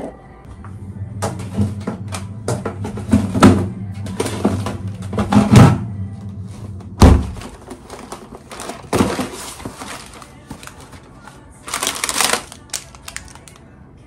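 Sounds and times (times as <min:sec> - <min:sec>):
loud thunk: 0:07.0 - 0:07.4
cardboard box rustling: 0:07.4 - 0:11.1.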